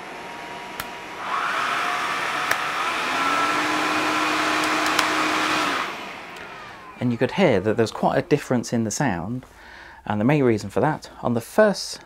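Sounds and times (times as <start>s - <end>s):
cordless vacuum cleaner running: 0.0s - 7.8s.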